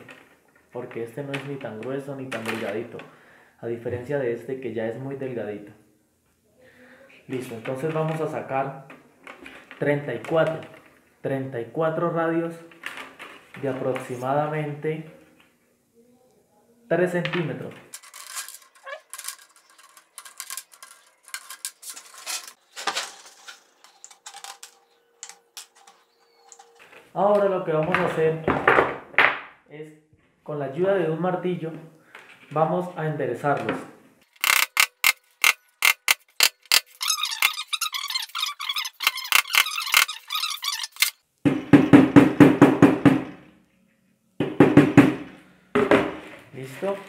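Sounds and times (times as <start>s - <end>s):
wire cutters snipping wire: 34.4s - 41.2s.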